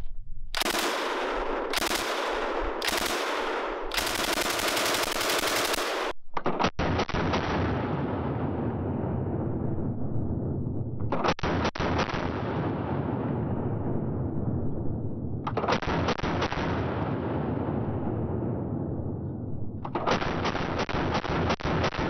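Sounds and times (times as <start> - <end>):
machine gun automatic fire: 0.6 - 7.6, 11.1 - 12.4, 19.9 - 22.0
gunfire echo: 0.6 - 9.9, 11.1 - 14.1, 15.5 - 19.2, 19.9 - 22.0.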